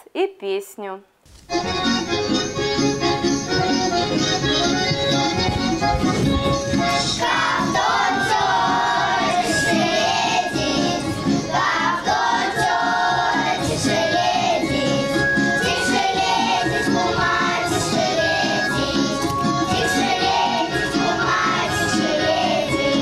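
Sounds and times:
instrumental accompaniment: 1.3 - 23.0
children singing in unison: 6.7 - 23.0.

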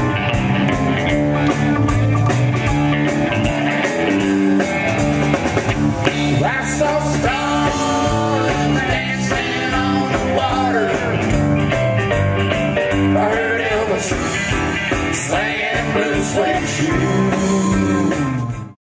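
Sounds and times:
drum kit with cymbals: 0.0 - 18.7
bass guitar: 0.0 - 18.8
electric guitar: 0.0 - 18.8
man singing: 6.1 - 11.3, 13.0 - 18.5.

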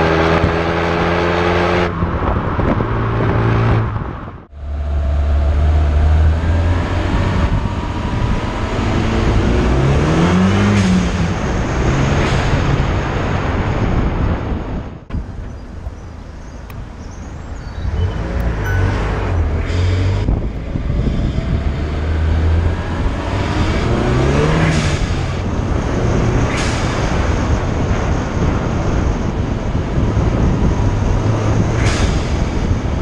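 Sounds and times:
car exhaust while driving: 0.0 - 14.6.

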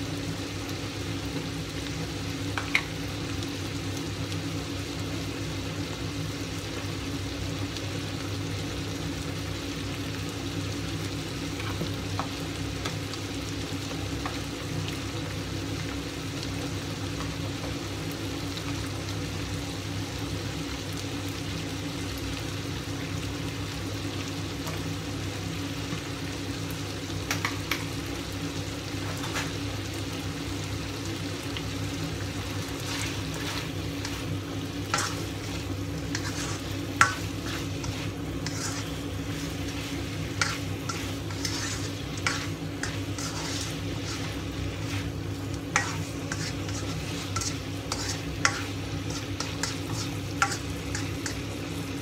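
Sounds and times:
food sizzling in a wok: 0.0 - 52.0
spatula stirring in a wok: 11.2 - 16.0, 31.5 - 52.0.

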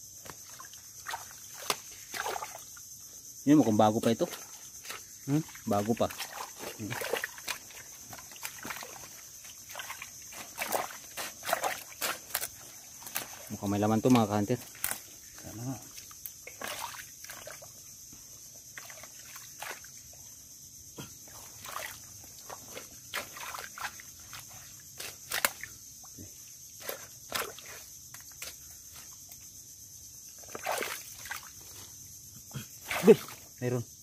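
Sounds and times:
hand squelching in wet mud: 0.2 - 2.7, 4.3 - 15.1, 15.8 - 17.7, 30.4 - 31.6.

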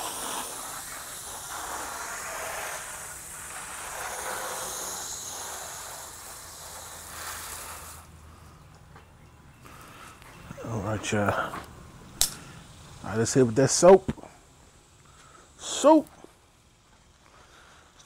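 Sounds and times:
water spraying onto motorcycle: 0.0 - 8.4.

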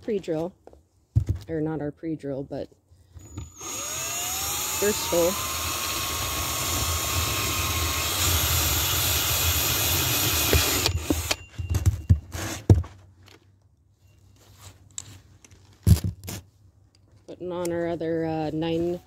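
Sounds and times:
plastic box clattering and knocking: 1.1 - 1.5
cordless drill boring plastic: 3.2 - 11.4.

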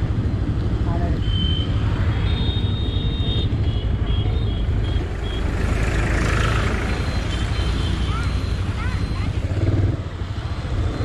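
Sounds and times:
high-pitched beeping tones: 6.6 - 10.0.

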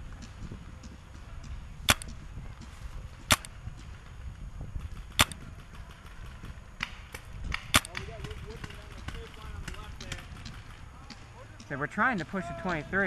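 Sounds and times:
paintball marker shots: 0.8 - 4.1, 4.8 - 11.2.

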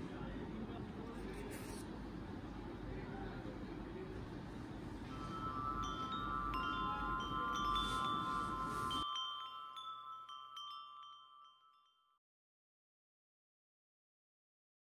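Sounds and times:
low background noise: 0.0 - 11.2
wind chimes ringing: 5.0 - 12.2.

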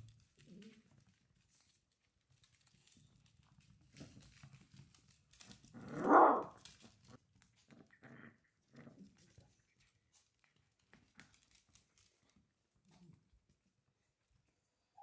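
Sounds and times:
puppy vocalizing: 5.8 - 6.6.

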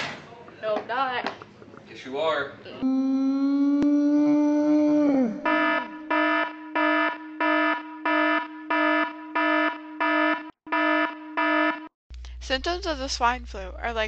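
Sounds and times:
electronic alarm beeping: 5.4 - 11.9.

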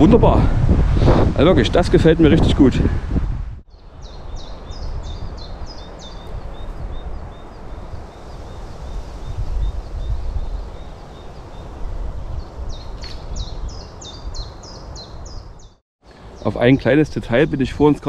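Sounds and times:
wind buffeting the microphone: 0.0 - 15.7
small bird chirping: 3.7 - 15.8.

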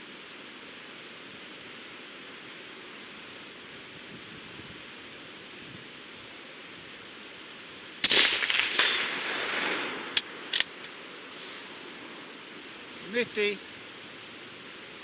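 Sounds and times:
rain hissing: 0.0 - 15.0
suppressed rifle shot with echo: 8.0 - 10.8.

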